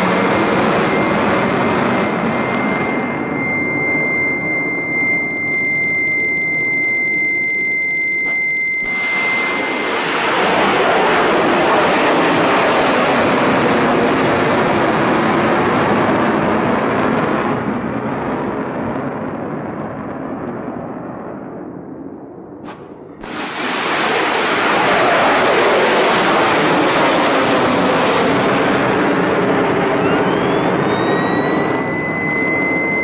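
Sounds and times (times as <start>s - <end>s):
rocket motor roaring: 0.0s - 14.8s, 22.7s - 33.0s
steady high whine: 0.0s - 33.0s.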